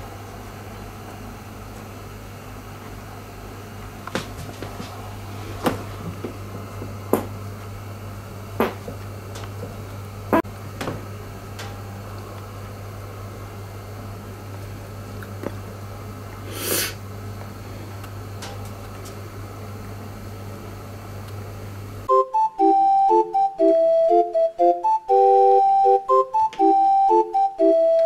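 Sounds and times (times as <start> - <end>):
steady low hum: 0.0 - 28.0
cat hissing puff: 16.4 - 17.0.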